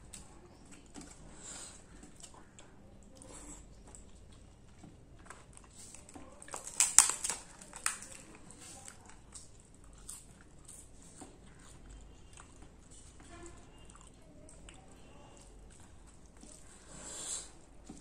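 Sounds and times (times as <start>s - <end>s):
wet chewing: 0.0s - 18.0s
papad cracking crunches: 5.2s - 10.4s.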